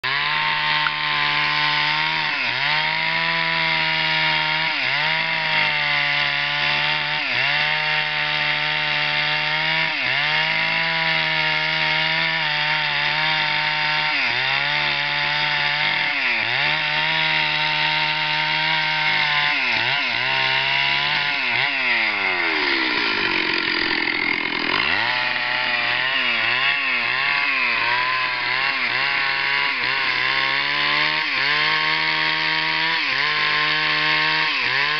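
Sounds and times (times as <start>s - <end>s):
chainsaw engine revving: 0.0s - 34.9s.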